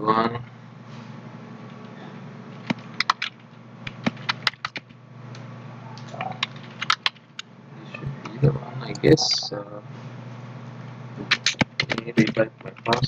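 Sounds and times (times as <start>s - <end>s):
steady low hum: 0.0s - 13.0s
keyboard keys clicking: 2.6s - 4.9s, 6.0s - 7.5s, 11.2s - 13.0s.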